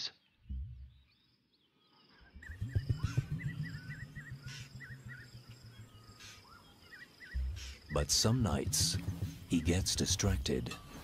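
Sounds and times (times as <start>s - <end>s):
low rapid pulsing: 2.4s - 6.2s, 7.4s - 10.9s
wavy chirping call: 2.4s - 11.0s.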